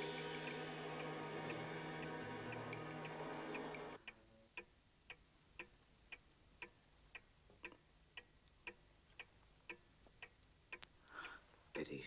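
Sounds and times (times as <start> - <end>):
clock ticking: 0.0 - 12.0.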